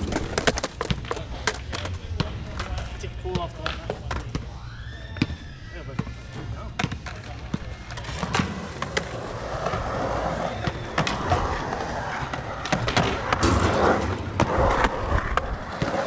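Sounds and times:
skateboard clicks and knocks: 0.0s - 3.0s, 6.9s - 16.0s
skateboard wheels rolling on concrete: 0.0s - 4.5s, 6.8s - 16.0s.

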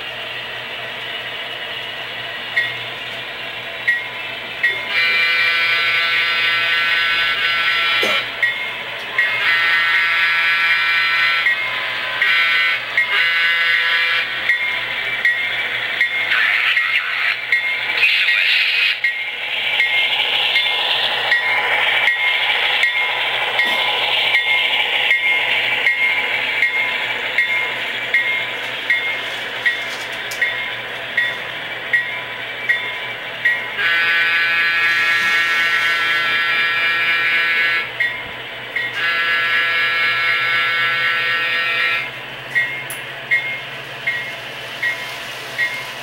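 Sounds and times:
model locomotive engine sound: 0.0s - 46.0s
locomotive horn blast: 4.9s - 8.3s, 9.3s - 11.6s, 12.2s - 14.3s, 33.8s - 38.0s, 38.9s - 42.1s.

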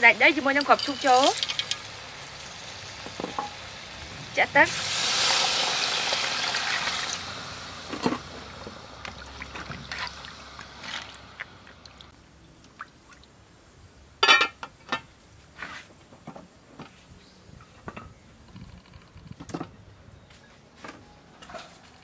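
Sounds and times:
metal ladle stirring: 0.4s - 1.9s
water pouring into pot: 0.4s - 3.9s, 4.7s - 12.1s.

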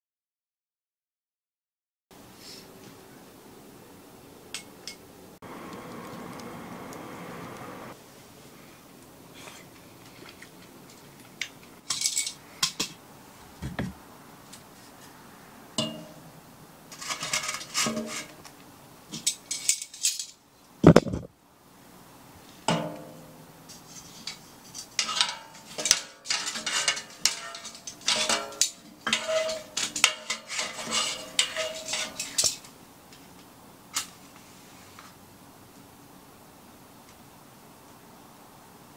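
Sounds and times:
hard objects clinking and clattering: 11.8s - 13.0s, 23.7s - 32.7s.

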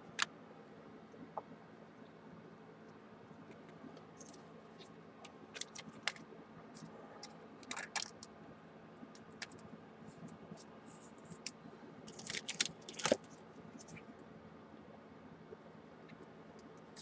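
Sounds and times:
cards and packaging clicking and rustling: 5.2s - 6.2s, 6.8s - 8.3s, 11.3s - 14.0s.

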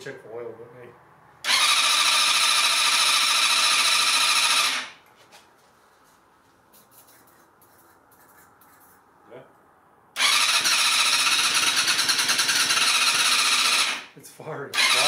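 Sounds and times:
motorcycle starter cranking: 1.4s - 4.9s, 10.2s - 14.1s, 14.8s - 15.0s.

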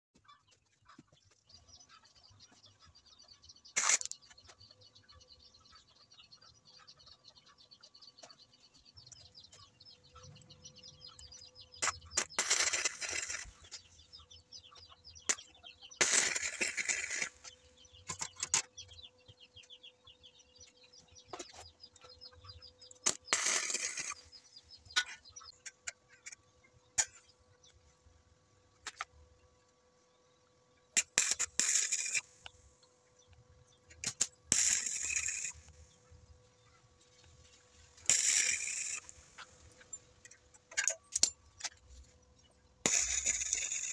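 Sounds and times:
welding arc crackle: 3.8s - 4.2s, 11.8s - 13.8s, 15.3s - 17.5s, 23.0s - 24.4s, 31.0s - 32.5s, 34.0s - 35.7s, 38.0s - 39.4s, 42.8s - 43.9s.

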